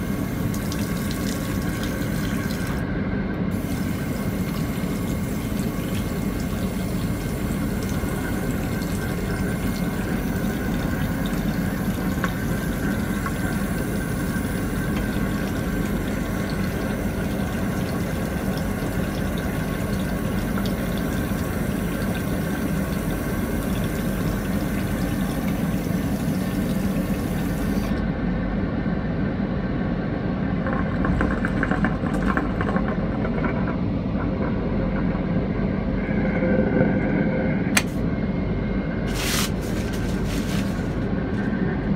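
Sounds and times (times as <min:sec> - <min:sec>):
suction drain sucking water: 0:00.0 - 0:02.8, 0:03.5 - 0:28.0
water running from tap into sink: 0:00.0 - 0:02.8, 0:03.6 - 0:28.0
aircraft cabin drone: 0:00.0 - 0:41.9.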